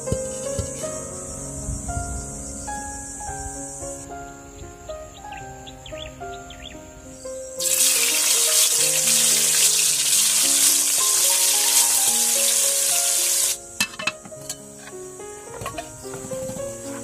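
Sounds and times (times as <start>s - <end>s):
fish sizzling in hot oil: 7.6s - 14.0s.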